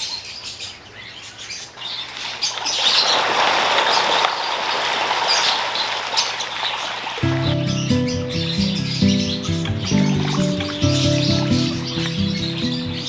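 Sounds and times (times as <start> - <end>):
fish splashing at surface: 2.1 - 7.2
birds chirping: 5.3 - 13.0.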